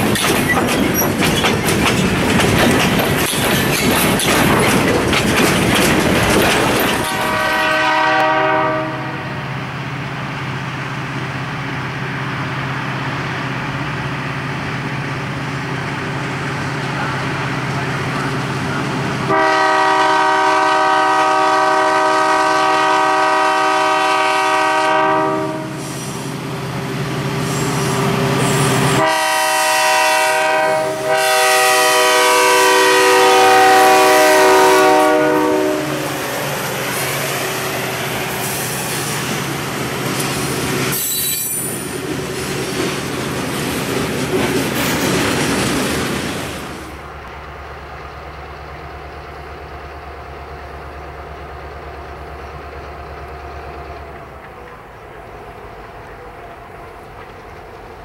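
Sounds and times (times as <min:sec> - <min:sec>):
freight train rumbling past: 0:00.0 - 0:58.0
diesel locomotive horn blasts: 0:07.0 - 0:09.5, 0:19.2 - 0:26.0, 0:28.5 - 0:37.1.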